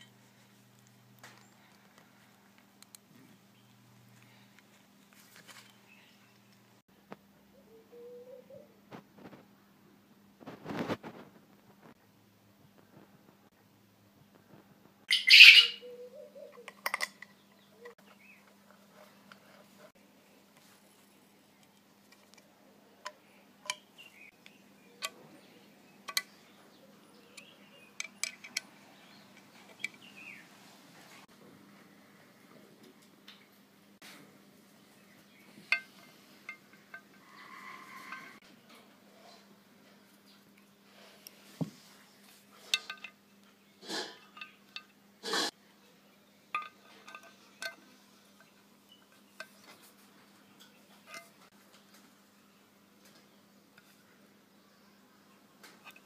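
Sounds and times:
light metallic clicks and clinks: 46.5 - 49.7.

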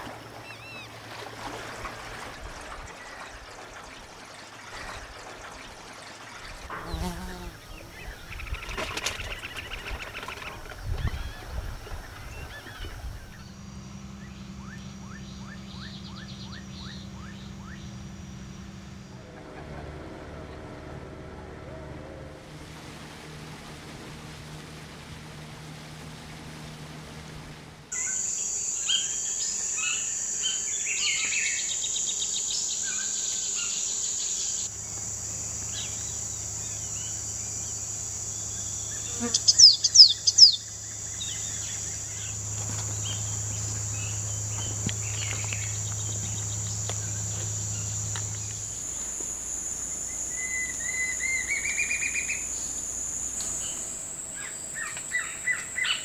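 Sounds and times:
faint outboard motor hum: 0.0 - 56.0
insect drone: 0.0 - 56.0
birds calling: 1.8 - 13.5, 27.9 - 56.0
whistled notes rising in pitch: 50.1 - 56.0.

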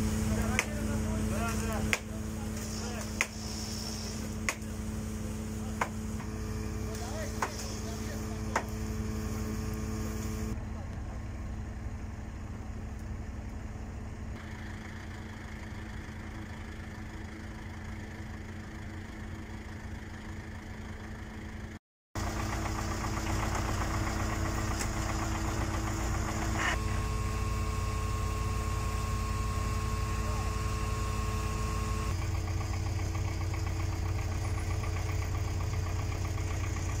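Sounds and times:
steady whine: 0.0 - 15.4, 22.2 - 32.6
heavy engines idling: 0.0 - 37.0.

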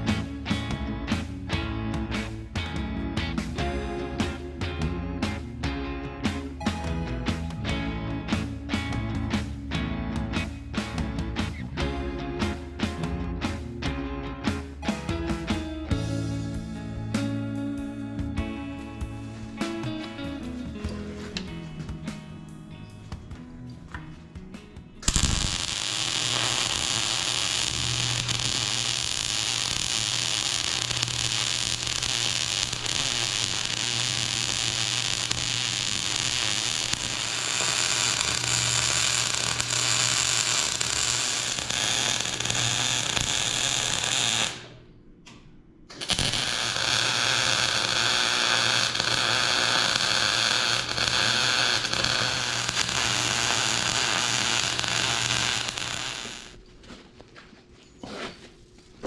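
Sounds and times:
welder arc crackling: 0.0 - 1.6, 25.0 - 44.8, 45.9 - 56.6.

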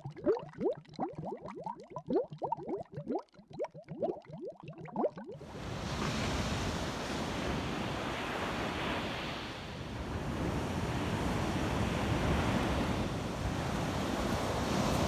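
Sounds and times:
ocean surf breaking on beach: 5.4 - 15.0.

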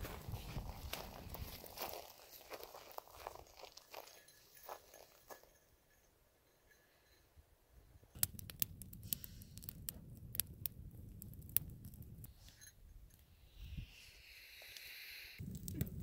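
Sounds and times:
campfire crackling: 8.1 - 12.3, 15.4 - 16.0
low rumble of flame: 8.1 - 12.3, 15.4 - 16.0.

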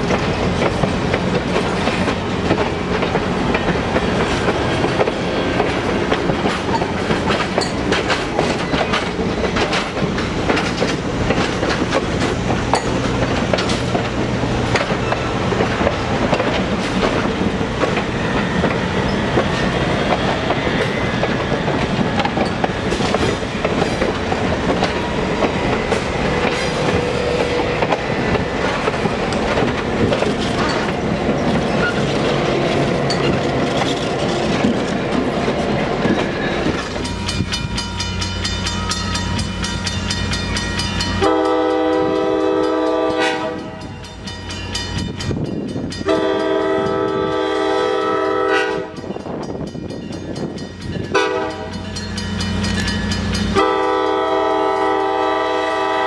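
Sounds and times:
diesel locomotive droning: 0.0 - 56.0
train wheels clicking over rail joints: 0.0 - 56.0
multi-note train air horn: 41.2 - 43.8, 46.1 - 49.0, 51.2 - 51.7, 53.6 - 56.0.

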